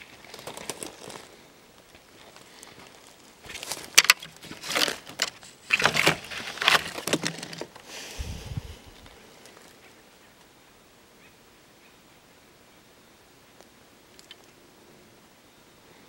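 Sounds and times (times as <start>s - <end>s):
dry twigs crackling and snapping: 0.0s - 7.9s.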